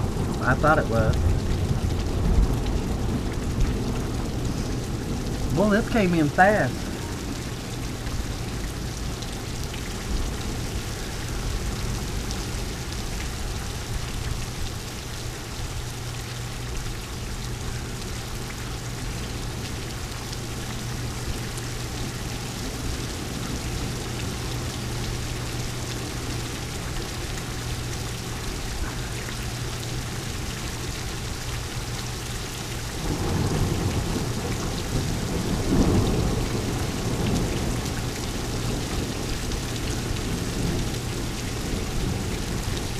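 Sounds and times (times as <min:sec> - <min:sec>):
thunder rumbling: 0:00.0 - 0:14.1, 0:33.0 - 0:42.9
steady rain falling: 0:00.0 - 0:42.9.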